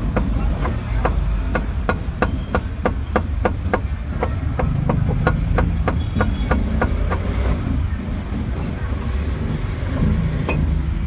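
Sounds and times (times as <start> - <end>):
cleaver chopping meat on wood: 0.0 - 7.3.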